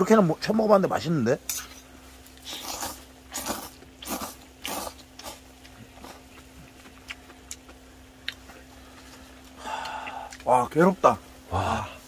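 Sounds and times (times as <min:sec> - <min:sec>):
steady low hum: 0:00.0 - 0:12.0
slurping noodles: 0:02.4 - 0:05.4.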